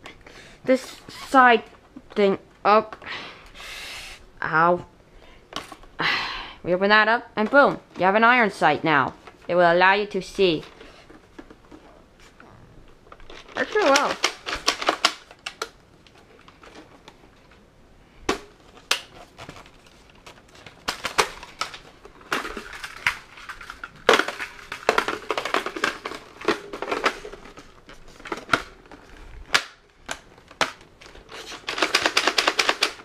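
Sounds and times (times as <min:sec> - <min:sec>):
rustling: 0:10.4 - 0:33.0
plastic toy clicks and knocks: 0:13.1 - 0:15.8, 0:20.8 - 0:33.0.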